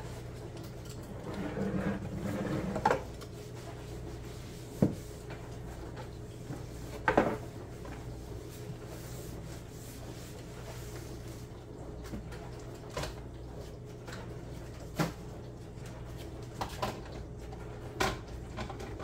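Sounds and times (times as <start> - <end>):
paper towel wiping countertop: 1.2 - 12.2.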